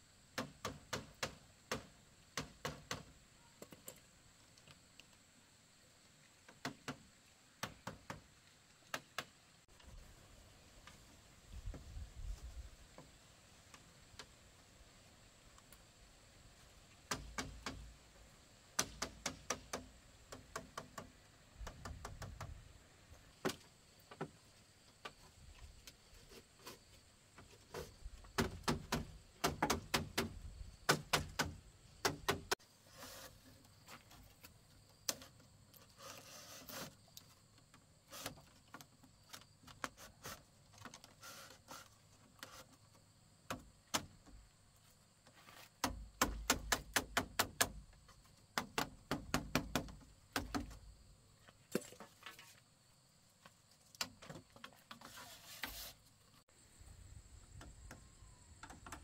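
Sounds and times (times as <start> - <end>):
sharp knocks and clicks: 28.3 - 32.6, 45.8 - 47.8, 48.5 - 50.8, 58.6 - 59.0.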